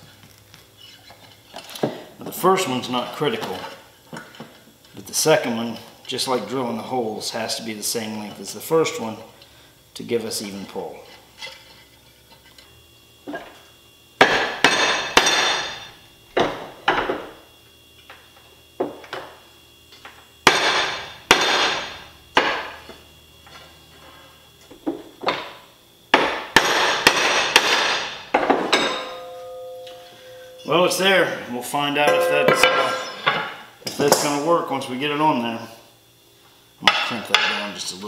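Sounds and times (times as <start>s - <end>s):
hammer striking metal on anvil: 26.1s - 31.0s, 32.0s - 33.6s.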